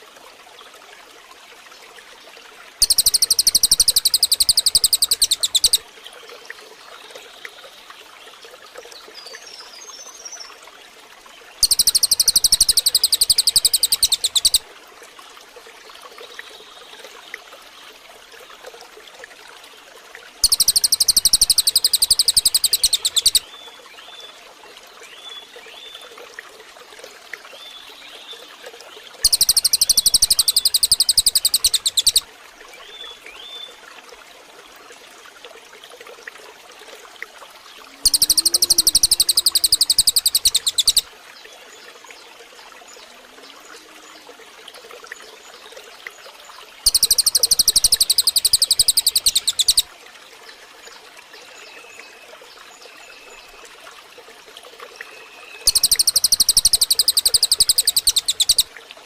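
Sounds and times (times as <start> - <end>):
trickling water: 0.0 - 59.0
soft bird chirps: 2.8 - 5.8, 11.6 - 14.6, 20.4 - 23.5, 29.2 - 32.2, 38.0 - 41.1, 46.8 - 49.9, 55.0 - 58.7
songbird rapid high trill: 2.8 - 5.8, 11.6 - 14.6, 20.4 - 23.4, 29.2 - 32.2, 38.0 - 41.0, 46.8 - 49.9, 55.6 - 58.7.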